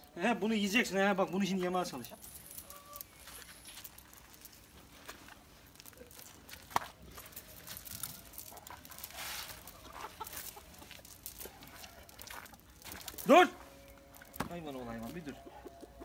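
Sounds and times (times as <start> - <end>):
chickens clucking faintly: 8.2 - 12.6, 14.7 - 16.0.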